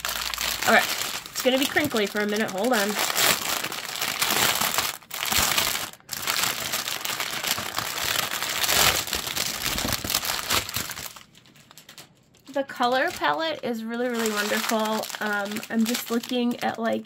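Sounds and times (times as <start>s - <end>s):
plastic wrap crinkling: 0.0s - 17.0s.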